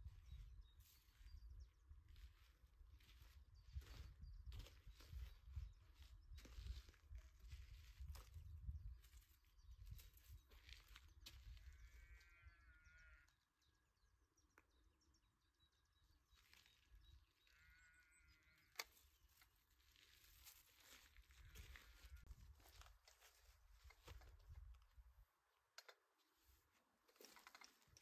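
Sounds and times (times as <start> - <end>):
low wind rumble on microphone: 3.6 - 10.4.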